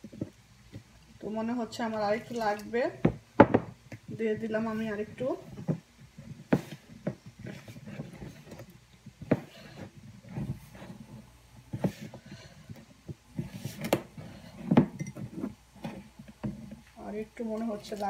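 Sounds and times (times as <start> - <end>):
hands kneading dough: 3.7 - 18.0.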